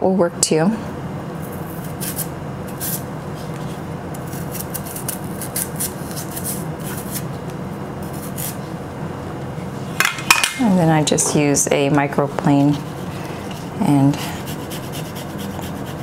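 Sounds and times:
knife scraping ginger skin: 0:01.4 - 0:07.3, 0:08.0 - 0:08.6, 0:14.3 - 0:16.0.

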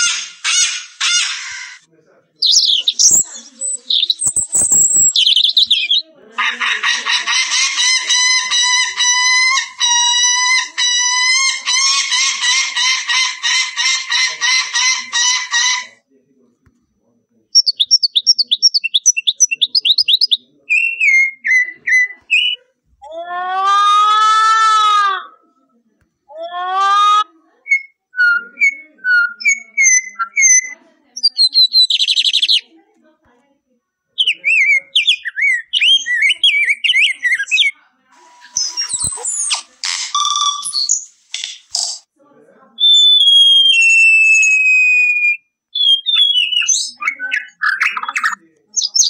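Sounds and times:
bird wailing: 0:00.0 - 0:01.8
high falling bird notes and chirps: 0:00.0 - 0:06.0, 0:17.6 - 0:22.6, 0:27.8 - 0:32.6, 0:34.2 - 0:41.2, 0:42.8 - 0:49.0
warbling bird song: 0:00.0 - 0:16.0, 0:17.5 - 0:22.6, 0:27.7 - 0:32.7, 0:34.2 - 0:41.2, 0:42.8 - 0:49.0.

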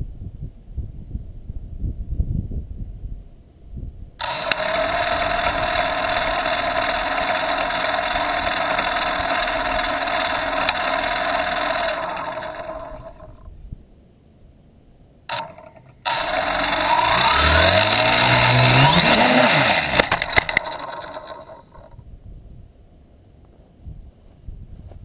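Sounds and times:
quadcopter motors whining: 0:04.2 - 0:13.5, 0:15.3 - 0:22.0.

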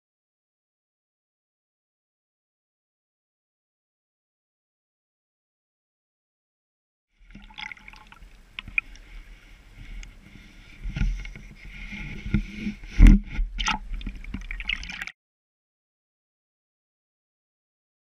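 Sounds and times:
stream water splashing: 0:07.2 - 0:15.1.

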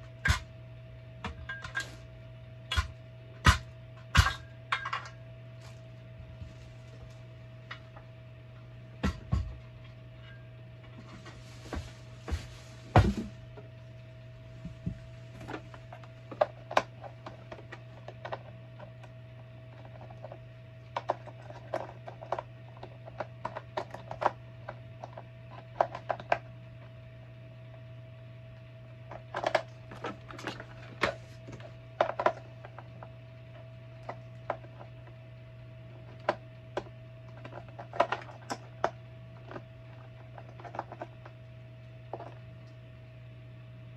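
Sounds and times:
steady low hum: 0:00.0 - 0:43.9
plastic parts clicking and knocking: 0:15.5 - 0:19.1, 0:19.7 - 0:26.5, 0:29.1 - 0:33.1, 0:36.0 - 0:41.4, 0:42.1 - 0:42.4.

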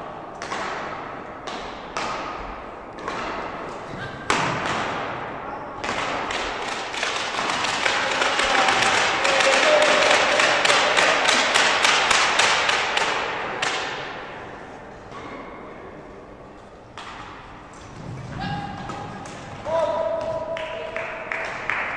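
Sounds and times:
spectators clapping: 0:06.2 - 0:13.8, 0:20.5 - 0:21.9.

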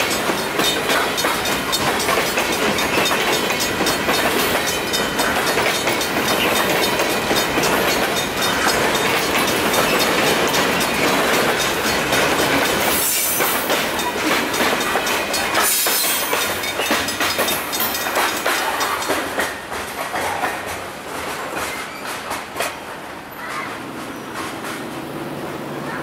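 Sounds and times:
railroad crossing bell ringing: 0:00.0 - 0:19.7.

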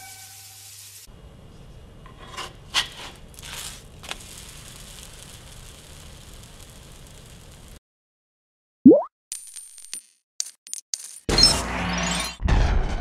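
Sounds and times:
pancakes sizzling in a pan: 0:00.0 - 0:01.1, 0:02.5 - 0:07.8
spatula scraping and tapping pan: 0:02.0 - 0:03.7.

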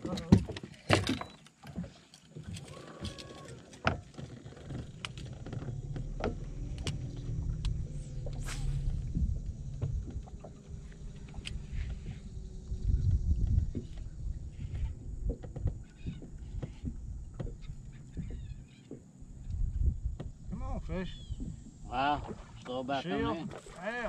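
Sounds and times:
wind buffeting microphone: 0:05.3 - 0:22.6.

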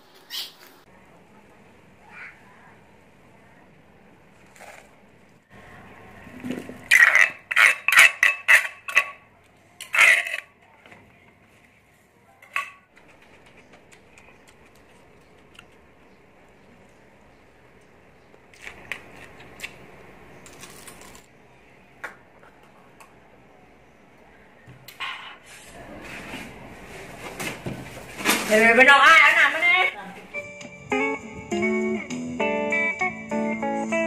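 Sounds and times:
spoon scraping a mortar: 0:06.5 - 0:09.2, 0:09.8 - 0:10.5.

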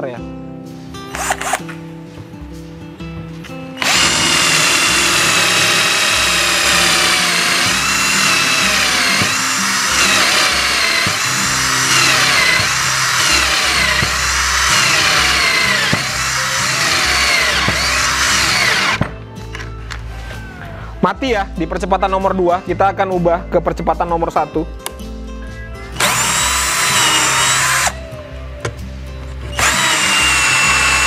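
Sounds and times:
cordless drill whining: 0:01.1 - 0:01.6, 0:03.8 - 0:19.0, 0:26.0 - 0:28.1, 0:29.5 - 0:31.0.

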